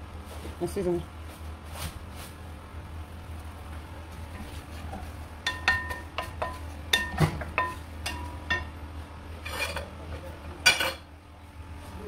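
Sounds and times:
wooden spatula knocking on pan: 0:05.5 - 0:08.7
spatula scraping pan: 0:09.4 - 0:09.9.

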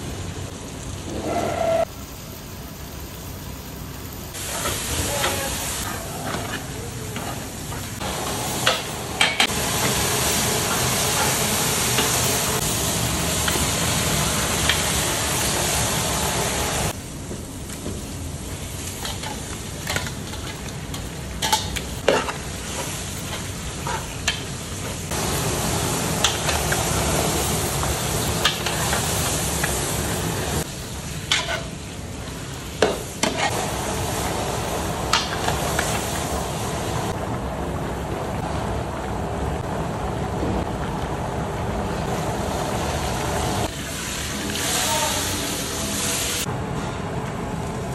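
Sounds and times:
meat sizzling in a pot: 0:00.0 - 0:17.0, 0:17.7 - 0:39.8, 0:40.6 - 0:46.5.

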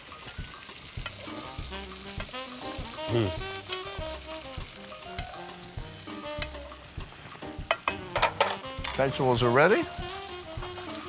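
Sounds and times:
fish sizzling in hot oil: 0:00.0 - 0:11.0
light background music: 0:00.0 - 0:11.0
metal spoon scraping a pan: 0:07.7 - 0:09.2.

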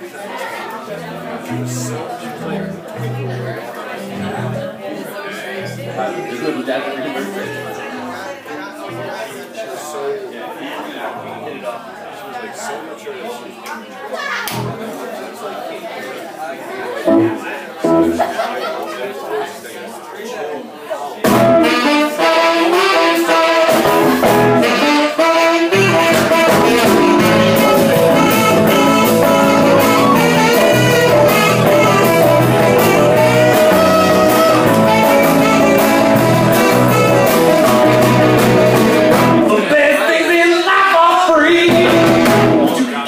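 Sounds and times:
blues-rock band playing: 0:00.9 - 0:04.8, 0:14.5 - 0:14.8, 0:17.1 - 0:18.5, 0:21.3 - 0:39.6, 0:41.5 - 0:42.9
saxophone: 0:21.4 - 0:39.5.

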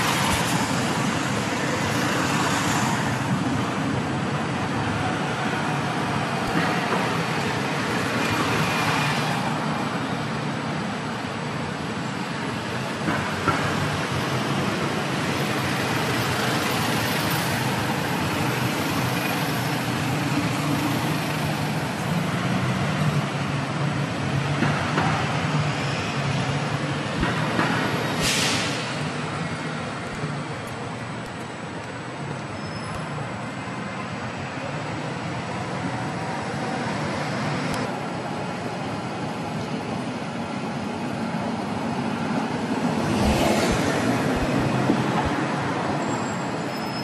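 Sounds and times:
road traffic roar: 0:00.0 - 0:47.0
short sharp hiss: 0:28.1 - 0:29.0.

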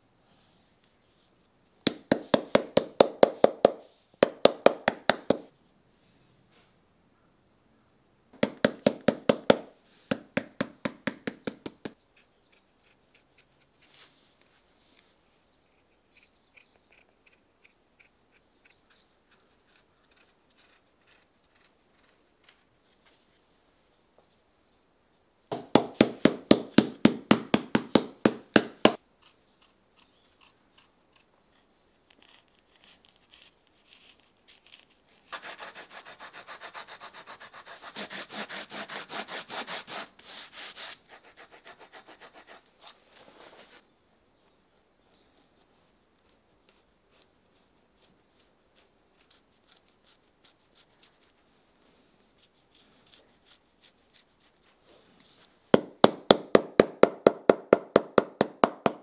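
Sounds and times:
knife trimming ticks: 0:15.7 - 0:21.8
rasp scraping leather sole: 0:28.9 - 0:31.3, 0:32.1 - 0:43.0.

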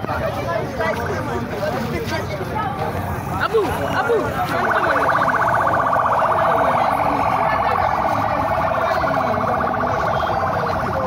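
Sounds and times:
crowd chatter: 0:00.0 - 0:11.0
ambulance siren warbling: 0:03.4 - 0:11.0.

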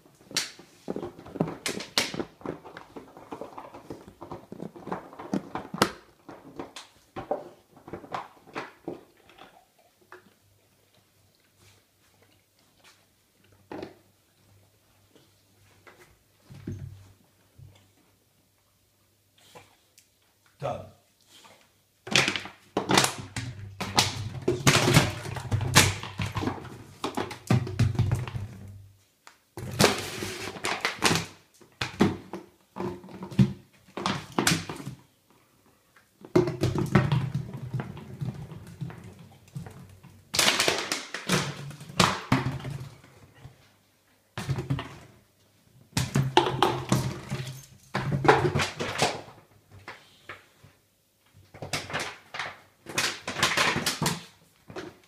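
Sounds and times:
dog chewing plastic bottle: 0:00.9 - 0:09.7.

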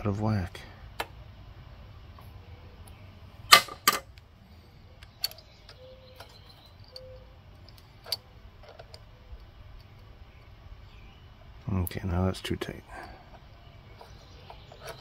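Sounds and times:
metal clicks of wrench on locknut: 0:05.0 - 0:10.1.

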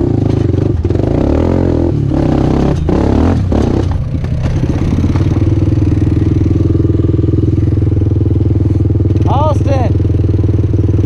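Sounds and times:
motorcycle engine revving: 0:00.0 - 0:11.0
machine clattering over rough ground: 0:02.0 - 0:07.9.

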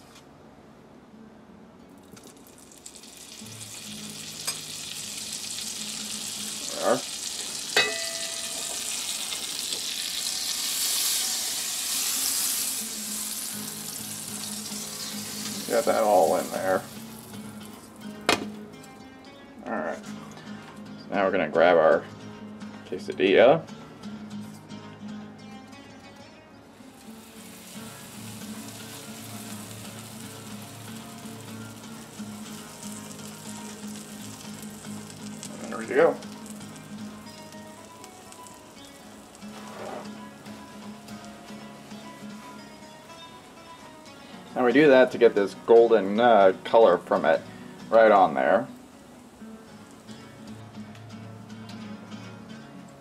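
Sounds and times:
fat sizzling in a frying pan: 0:02.1 - 0:18.9, 0:26.8 - 0:52.4
metallic clink of pan: 0:04.4 - 0:04.7, 0:07.8 - 0:09.8.

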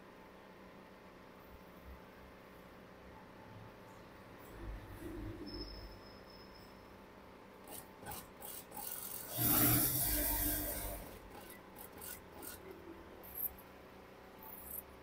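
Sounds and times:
industrial sewing machine stitching: 0:07.7 - 0:12.7.

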